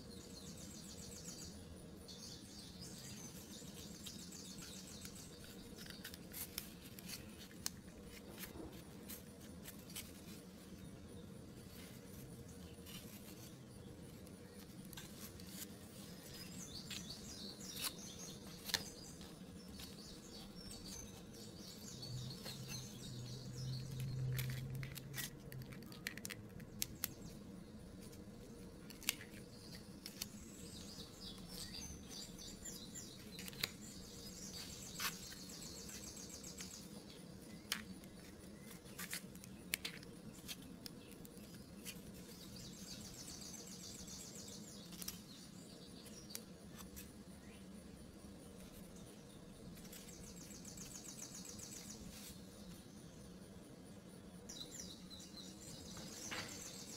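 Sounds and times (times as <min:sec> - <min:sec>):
soft rustling: 0:03.4 - 0:21.5
cardboard puzzle pieces clicking: 0:24.0 - 0:27.2, 0:28.8 - 0:30.4, 0:38.7 - 0:42.0.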